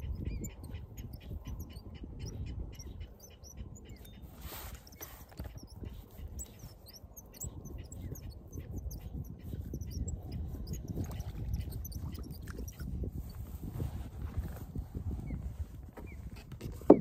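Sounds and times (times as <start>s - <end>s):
wind and water rumble: 0.0s - 17.0s.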